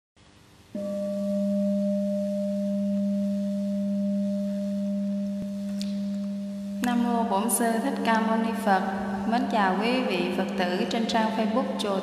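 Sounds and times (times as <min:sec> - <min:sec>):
bowl bell ringing: 0:00.7 - 0:07.5.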